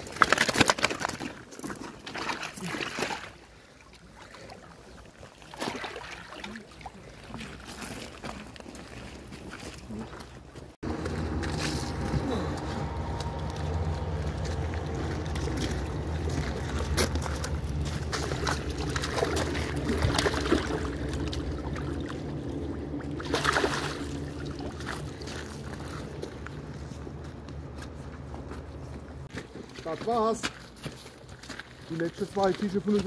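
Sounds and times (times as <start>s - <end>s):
water splashing and sloshing: 0.0s - 33.0s
steady low hum: 10.8s - 29.3s.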